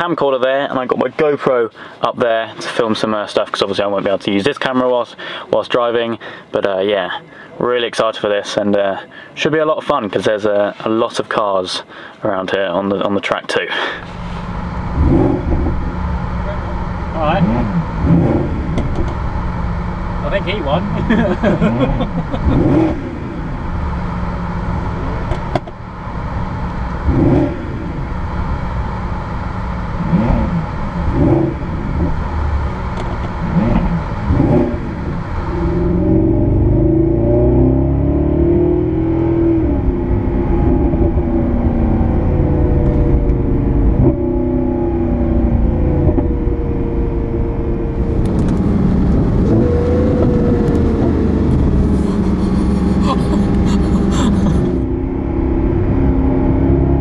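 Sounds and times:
car engine revving and accelerating: 14.0s - 57.0s.

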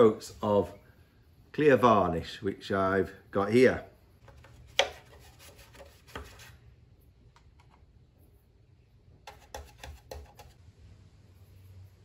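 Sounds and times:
paintbrush brushing on wood: 4.8s - 6.6s.

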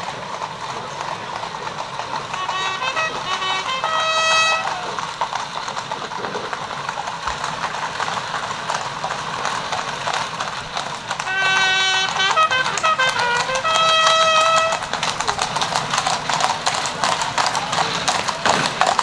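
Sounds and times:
horse hooves trotting on tarmac: 0.0s - 19.0s
horn call: 0.9s - 5.8s, 11.1s - 18.9s.

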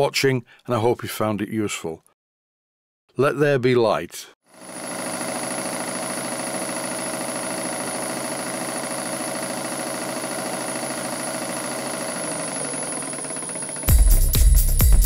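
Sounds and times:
model steam engine running: 4.6s - 13.9s.

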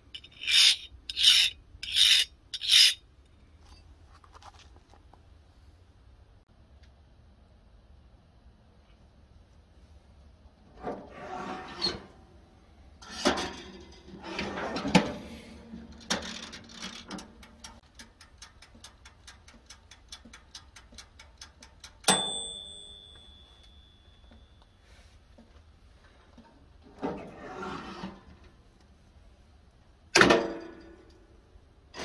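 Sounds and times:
bell ding: 22.1s - 24.6s.

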